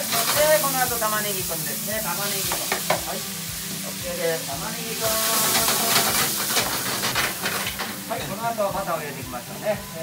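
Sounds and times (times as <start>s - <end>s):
onion sizzling in a frying pan: 0.0s - 10.0s
metal utensil scraping a pan: 5.3s - 8.4s.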